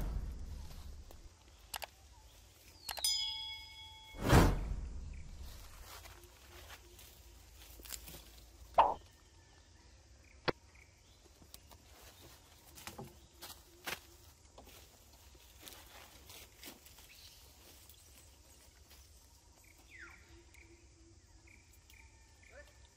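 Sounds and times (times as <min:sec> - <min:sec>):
twigs and leaves crackling: 0:05.3 - 0:09.1, 0:11.2 - 0:20.6.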